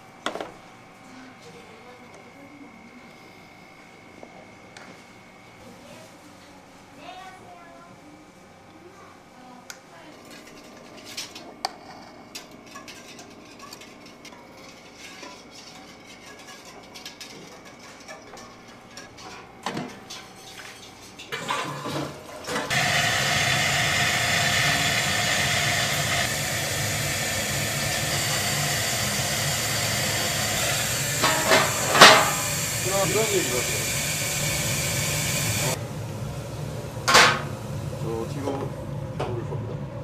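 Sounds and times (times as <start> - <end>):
steam hissing: 22.7 - 38.8.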